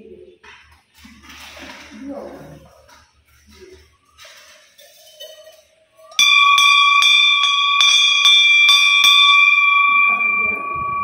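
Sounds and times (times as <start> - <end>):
bell struck and ringing: 6.1 - 11.0.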